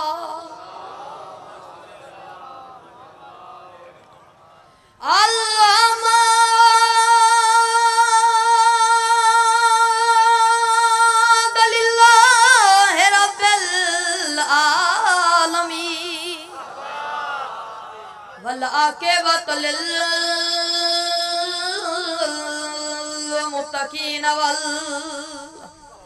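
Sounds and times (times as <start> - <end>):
boy singing into microphone: 0.0 - 0.6, 5.0 - 16.5, 18.4 - 26.0.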